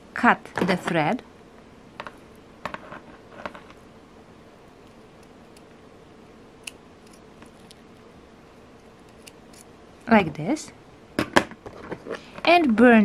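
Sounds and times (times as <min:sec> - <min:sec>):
scissors snipping thread: 0:09.0 - 0:09.7.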